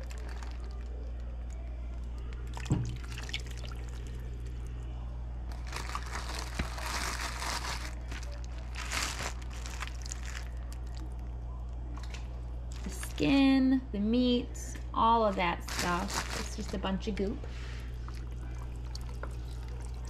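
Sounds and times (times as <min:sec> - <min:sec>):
plastic bag crinkling: 0:00.0 - 0:01.2, 0:05.5 - 0:11.2, 0:15.3 - 0:17.2
steady low hum: 0:00.0 - 0:20.0
juices sloshing and squelching: 0:02.4 - 0:04.7, 0:05.5 - 0:11.2, 0:15.6 - 0:16.8, 0:17.6 - 0:20.0.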